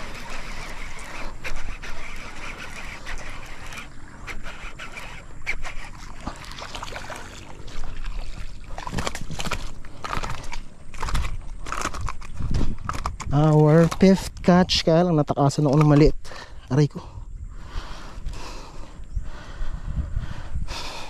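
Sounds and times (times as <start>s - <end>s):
fish splashing in water: 0.0s - 11.4s
rustling through brush: 0.0s - 13.1s
wind on microphone: 0.0s - 21.0s
knocks and crackles: 8.8s - 14.5s.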